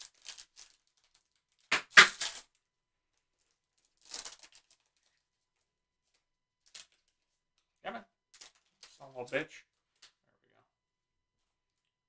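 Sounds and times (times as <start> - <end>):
foil wrapper crinkling: 0.0 - 2.6, 3.4 - 5.3.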